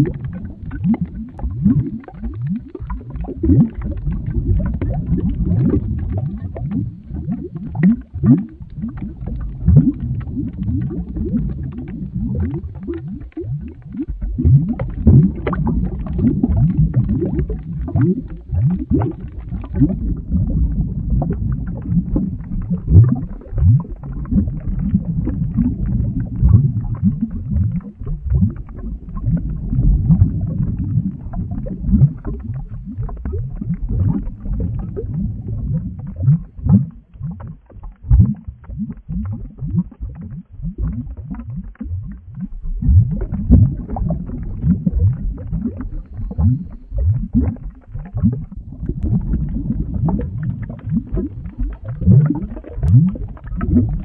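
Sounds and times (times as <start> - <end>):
thick liquid bubbling: 0.0 - 54.0.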